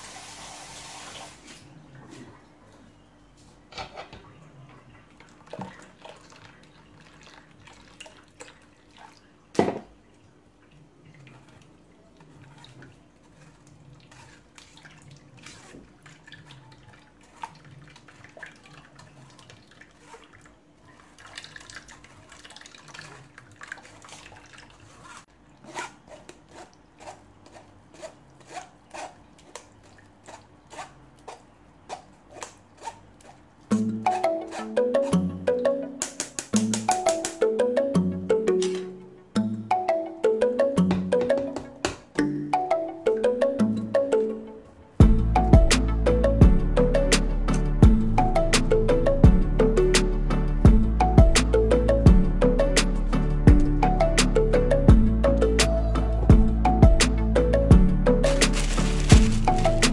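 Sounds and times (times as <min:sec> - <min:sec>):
metal spoon scraping a sieve: 0:24.9 - 0:29.2, 0:30.2 - 0:35.1.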